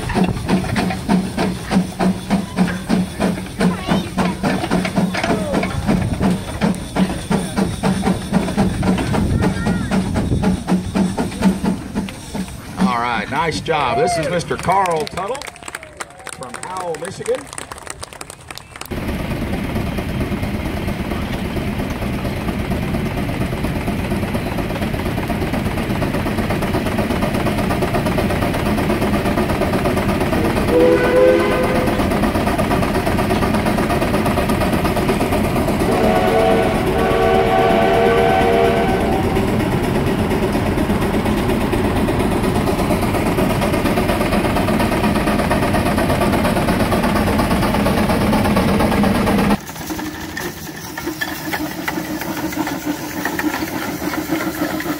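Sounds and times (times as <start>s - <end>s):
steam traction engine running: 0.0s - 54.9s
steam whistle blasts: 30.7s - 32.1s, 35.8s - 39.6s.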